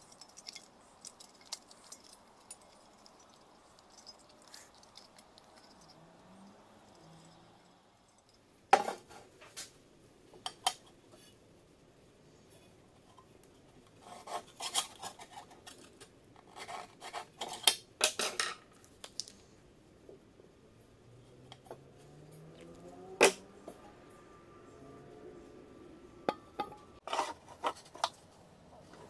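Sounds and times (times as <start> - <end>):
metal clinks and scrapes: 0.0 - 9.3.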